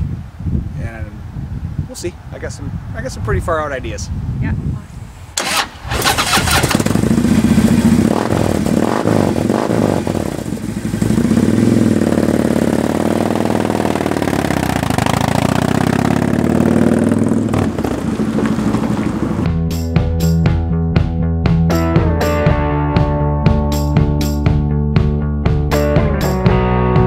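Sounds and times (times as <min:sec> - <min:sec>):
motorcycle engine revving: 0:05.4 - 0:21.1.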